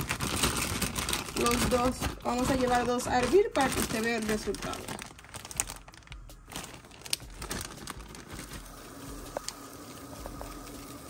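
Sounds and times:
small clicks and crinkling: 0.0s - 10.9s
faint steady hum: 0.0s - 11.0s.

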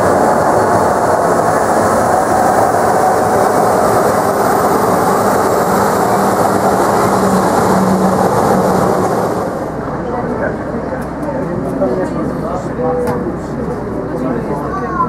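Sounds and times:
jet engines rushing: 0.0s - 14.6s.

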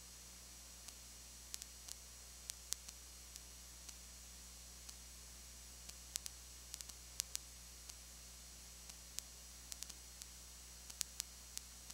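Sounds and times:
low hum and hiss: 0.0s - 11.9s
sharp clicks: 8.9s - 10.3s.

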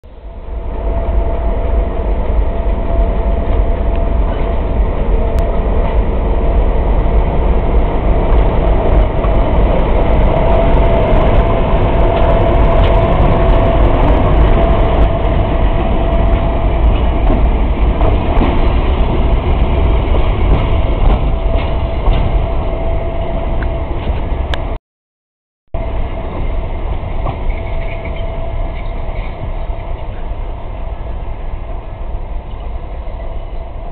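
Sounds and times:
locomotive diesel engine rumble: 0.0s - 24.8s
engine whine: 0.1s - 24.8s.

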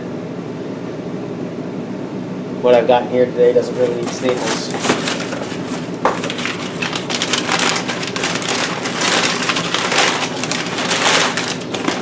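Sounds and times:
packing paper rustling: 3.4s - 12.0s.

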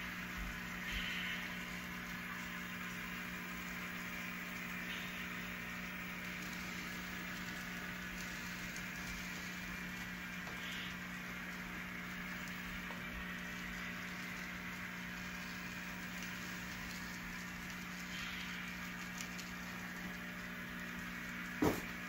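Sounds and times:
low constant hum: 0.0s - 22.0s
model train wheels on rail: 0.0s - 22.0s
sharp knock: 21.6s - 21.8s.

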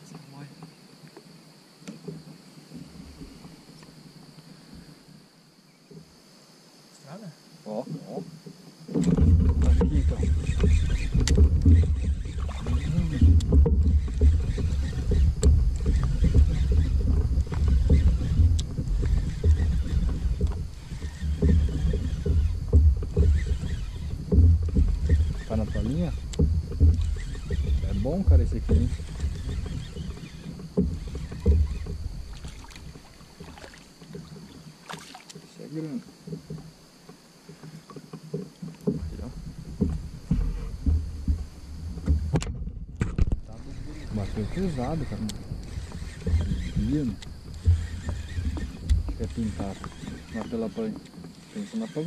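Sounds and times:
water rumbling against kayak hull: 7.9s - 52.0s
sharp knocks: 8.9s - 34.6s, 37.6s - 51.3s.

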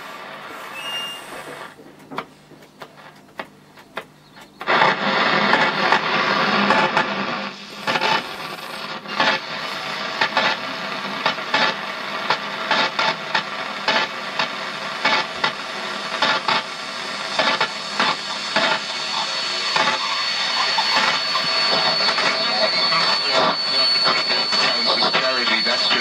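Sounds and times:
radio hiss between stations: 0.0s - 26.0s
thin high whistle: 0.5s - 1.7s, 18.5s - 26.0s
scratchy interference bursts: 3.9s - 26.0s.

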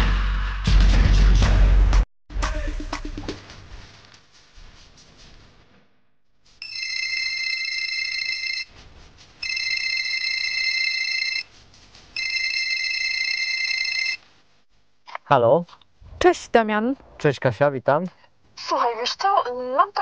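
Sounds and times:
mobile phone ringing: 6.6s - 8.7s, 9.4s - 11.5s, 12.2s - 14.2s.

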